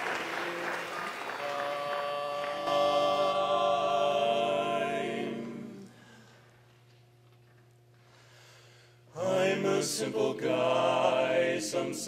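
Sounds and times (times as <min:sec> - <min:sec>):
audience applause: 0:00.0 - 0:03.3
men singing a held chord: 0:01.4 - 0:06.3, 0:09.1 - 0:12.0.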